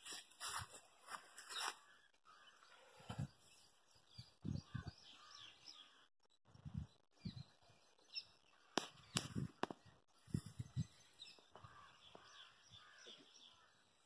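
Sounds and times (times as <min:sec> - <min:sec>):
distant crows cawing: 0:01.7 - 0:02.7, 0:11.5 - 0:13.8.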